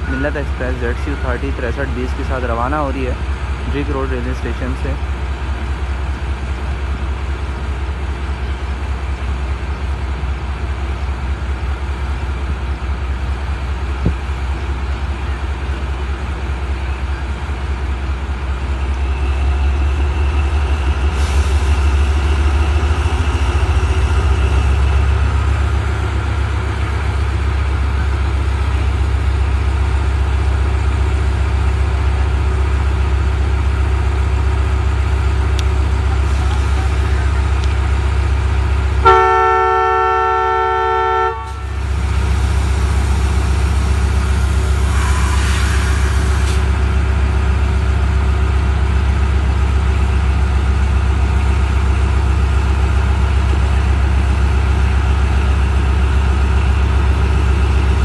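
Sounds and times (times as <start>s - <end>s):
locomotive engine rumbling: 0.0s - 58.0s
air hissing: 42.1s - 46.8s.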